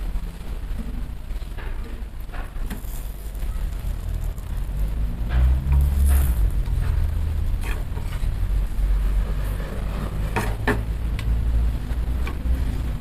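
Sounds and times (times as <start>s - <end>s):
low rumble: 2.2s - 10.3s.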